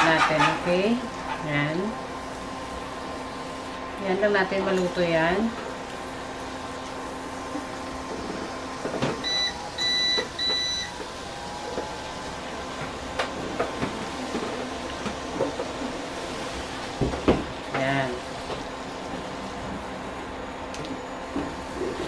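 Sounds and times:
steady hum: 0.0 - 22.0
cooktop control panel beeps: 9.2 - 11.0.

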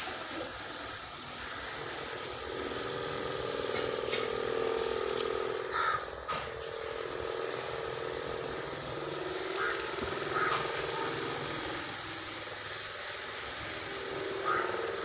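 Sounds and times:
machine-like hum: 0.0 - 15.0
short bird calls: 5.7 - 6.1.

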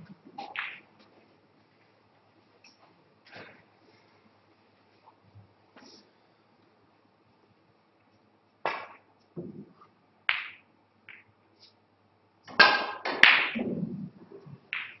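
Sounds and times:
snooker balls clicking: 0.0 - 1.3, 8.1 - 11.4, 12.4 - 15.0
cue striking ball: 0.1 - 0.9, 8.7 - 11.3, 12.5 - 13.9, 14.7 - 15.0.

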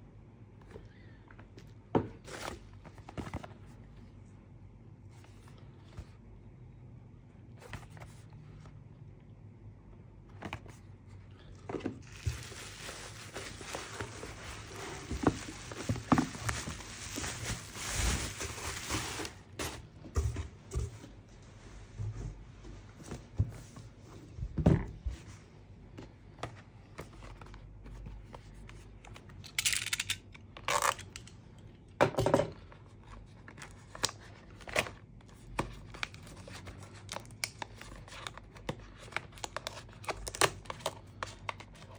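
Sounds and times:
packaging rustling and crinkling: 11.6 - 19.9.

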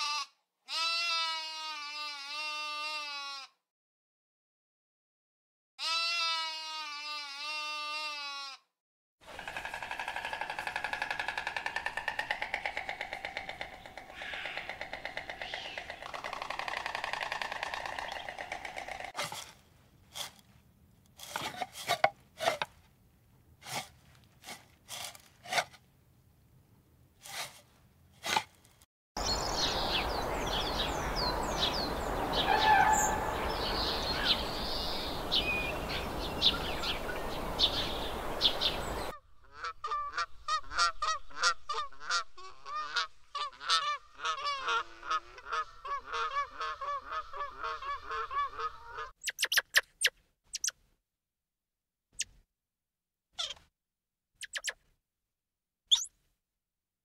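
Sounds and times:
waterfowl calling rapidly: 9.4 - 19.1, 29.2 - 50.7, 54.4 - 54.8
small birds chirping: 13.4 - 16.7, 29.2 - 39.2, 47.2 - 50.8, 54.4 - 54.8, 55.9 - 56.2.

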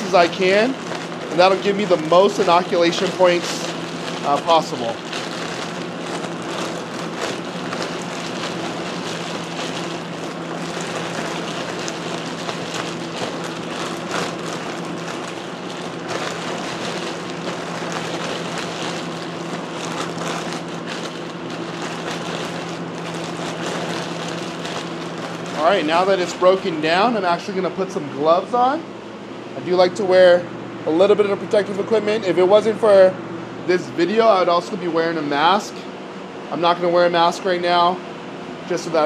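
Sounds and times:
grain crunching and rustling: 0.0 - 27.1
plastic bag crinkling: 0.0 - 27.2
fans humming: 0.0 - 39.0.

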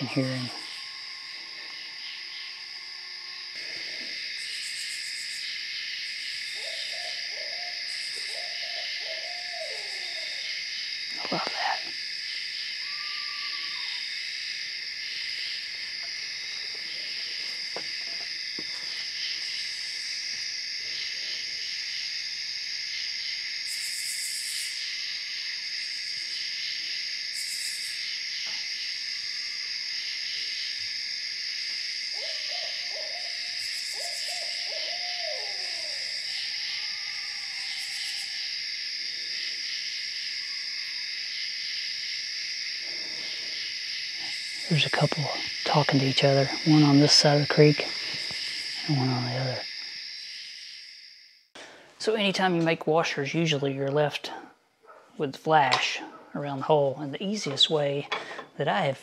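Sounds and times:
night insects chorus: 0.0 - 59.0
owls hooting: 6.5 - 10.6, 12.8 - 14.1, 32.1 - 38.6.

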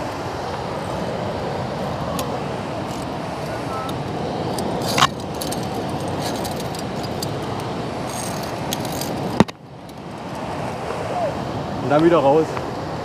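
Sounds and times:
steady rushing noise: 0.0 - 13.0
climbing gear clinking on metal: 4.5 - 9.3.

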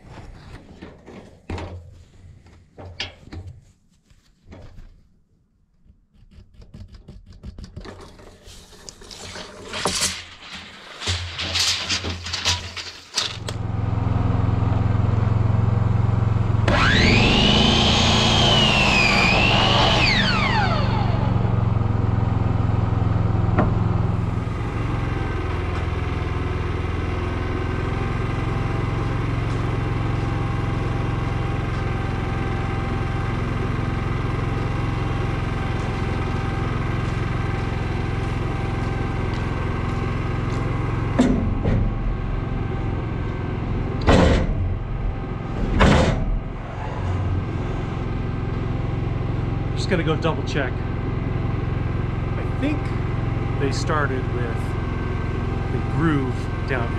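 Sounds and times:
engine running: 12.2 - 56.9
miter saw whining: 16.5 - 38.3.

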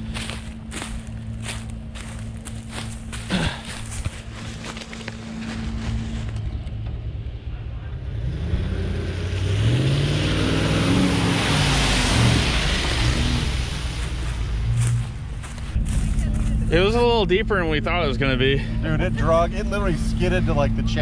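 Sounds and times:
mud and water sloshing: 0.0 - 6.4, 10.6 - 16.9
suv engine revving: 8.0 - 21.0.

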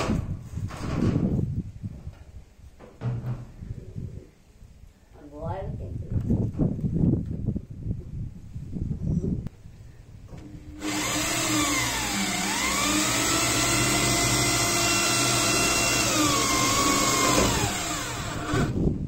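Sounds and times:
electric drill whining: 10.6 - 18.8
screw drilling into metal sheet: 10.7 - 18.8.

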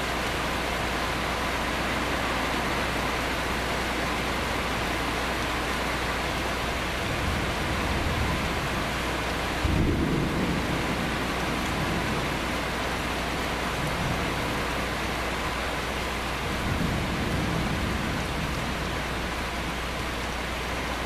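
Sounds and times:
heavy rain: 0.0 - 21.0
thunder rumbling: 7.0 - 12.7
thunder clap: 9.6 - 11.2.

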